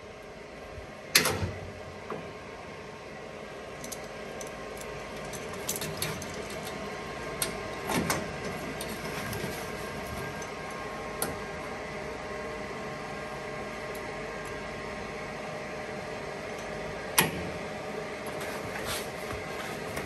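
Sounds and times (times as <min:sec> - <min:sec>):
background hum: 0:00.0 - 0:20.0.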